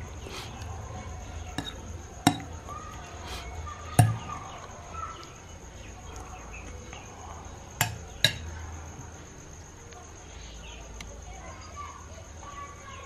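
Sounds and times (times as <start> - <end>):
fork clinking on ceramic plate: 1.6 - 2.5, 7.8 - 8.5.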